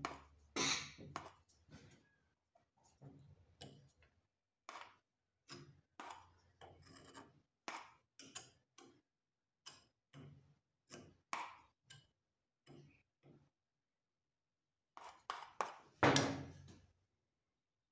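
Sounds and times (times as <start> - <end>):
metal spatula scraping plaster: 0.0 - 4.0, 4.7 - 9.0, 9.6 - 13.3, 14.9 - 16.0.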